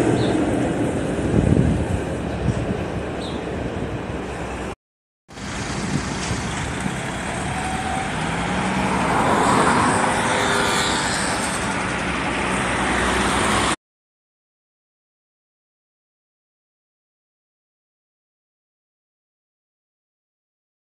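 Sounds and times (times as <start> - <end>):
street traffic: 0.0 - 13.8
car passing close: 5.3 - 13.8.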